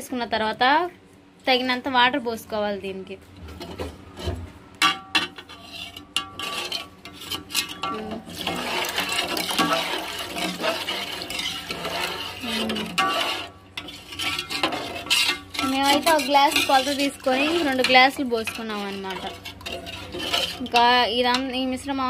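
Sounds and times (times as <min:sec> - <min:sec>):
metal clinking against a pot: 0:04.8 - 0:21.6.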